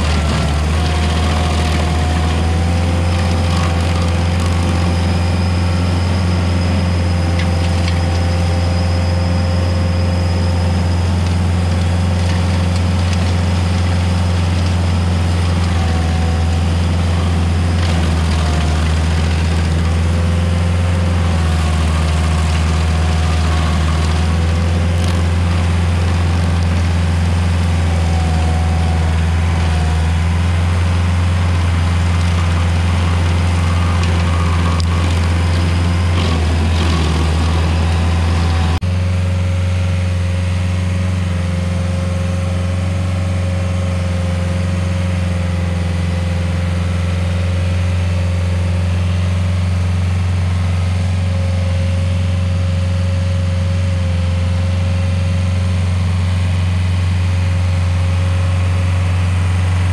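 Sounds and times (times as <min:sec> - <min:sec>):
cutter wheel grinding wood: 0:00.0 - 0:38.9
stump grinder engine running: 0:00.0 - 0:59.9.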